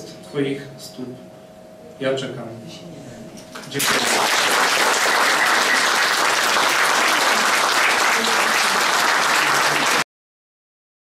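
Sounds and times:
audience applauding: 3.8s - 10.1s.

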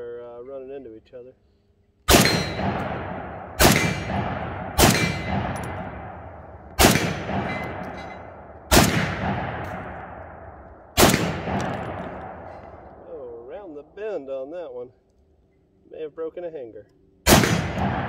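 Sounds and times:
rifle shots with echo: 2.1s - 13.6s, 17.2s - 18.0s
steel targets clanging: 2.2s - 2.9s, 4.9s - 5.9s, 7.2s - 8.5s.

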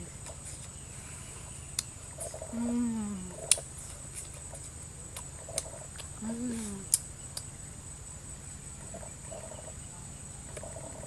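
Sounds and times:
woman humming mmm: 2.5s - 3.6s, 6.2s - 7.0s.

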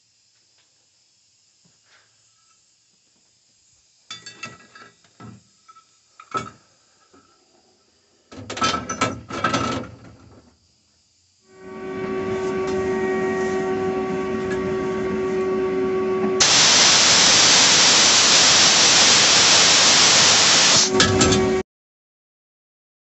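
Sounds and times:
loud harsh hiss: 0.0s - 4.1s, 10.8s - 21.6s
motor-driven tool humming: 11.6s - 21.6s.

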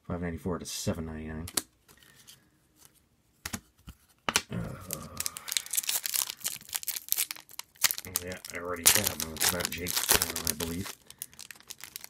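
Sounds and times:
foil wrapper tearing and crinkling: 4.8s - 12.0s.

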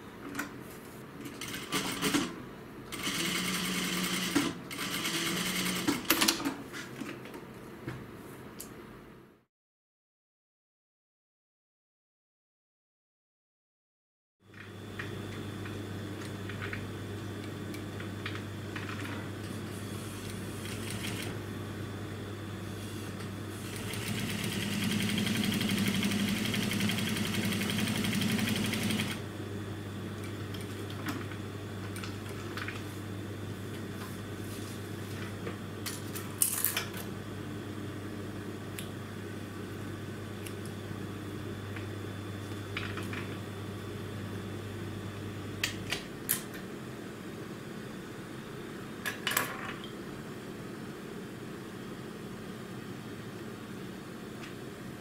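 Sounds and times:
sewing machine stitching: 2.9s - 6.2s, 20.2s - 21.4s, 23.6s - 29.2s.

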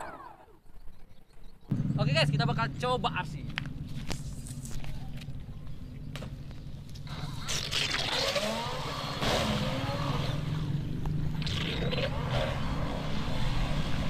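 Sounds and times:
electric boat motor whine: 7.1s - 10.8s.

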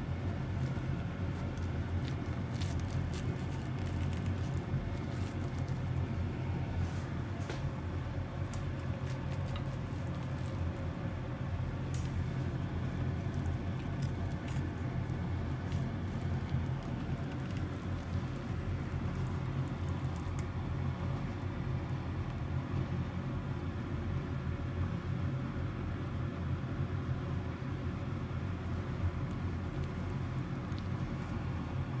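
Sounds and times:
low background hum: 0.0s - 32.0s
chopsticks clicking and squishing: 0.1s - 21.6s.

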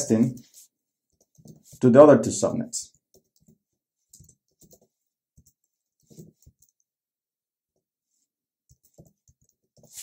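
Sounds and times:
faint keyboard typing: 0.1s - 1.8s, 2.9s - 7.0s, 8.6s - 10.0s.

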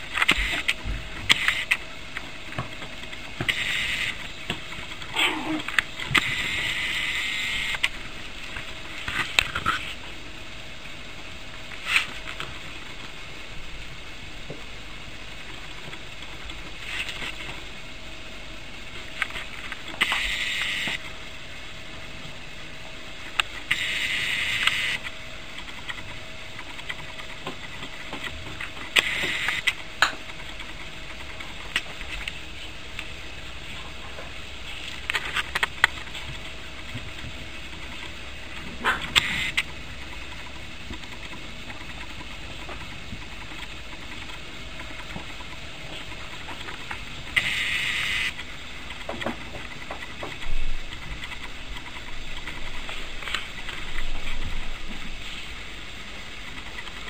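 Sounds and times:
puppies clicking and scuffling: 25.0s - 47.5s, 48.3s - 55.4s.

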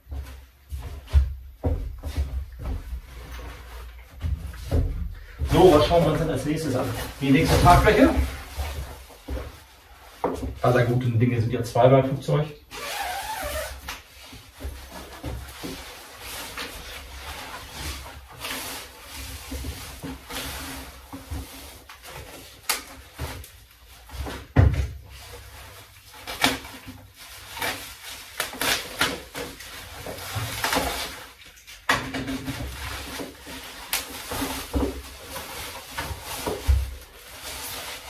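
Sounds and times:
plastic wrapping crinkling: 5.2s - 10.2s, 25.1s - 31.9s, 32.6s - 38.0s.

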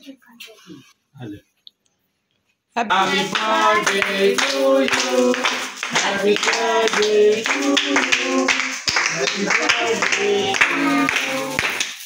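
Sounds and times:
people singing a tune: 2.8s - 12.0s
people clapping a steady beat: 2.9s - 12.0s.

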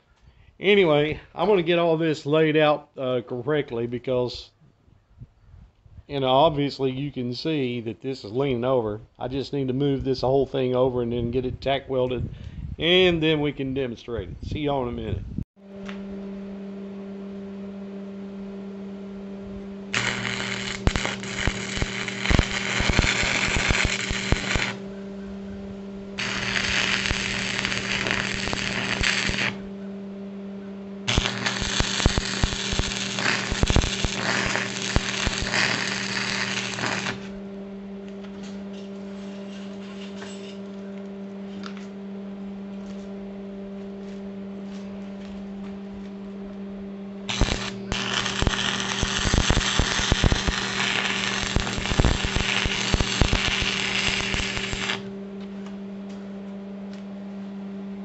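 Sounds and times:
low electrical hum: 0.0s - 58.0s
welding arc crackle: 19.9s - 24.8s, 26.2s - 29.6s, 31.1s - 37.4s, 47.3s - 55.1s.

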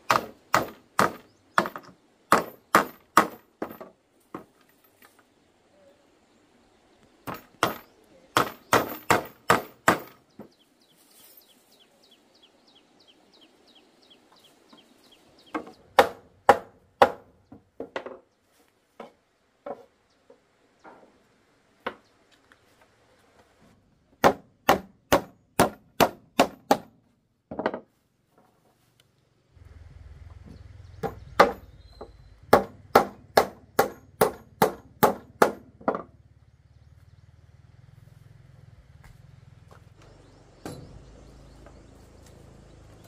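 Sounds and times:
tool striking wood: 0.0s - 4.5s, 7.2s - 10.5s, 15.5s - 18.2s, 24.2s - 27.9s, 31.0s - 36.1s.

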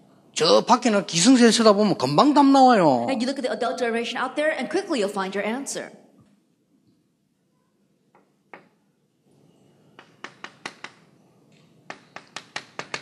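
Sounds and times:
chalk tapping and scratching: 10.0s - 11.1s, 11.9s - 13.0s.

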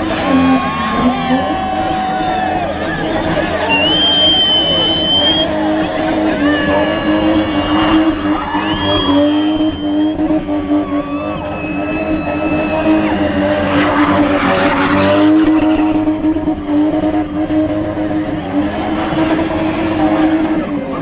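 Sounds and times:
car engine at high revs: 0.0s - 21.0s
tyres squealing: 2.8s - 16.1s.

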